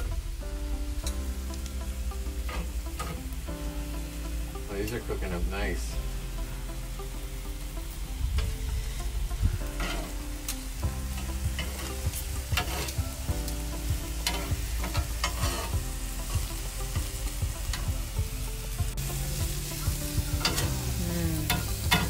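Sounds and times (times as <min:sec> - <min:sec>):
vegetables sizzling on a griddle: 0:00.0 - 0:22.0
spatula scraping a griddle: 0:01.4 - 0:03.4, 0:06.6 - 0:22.0.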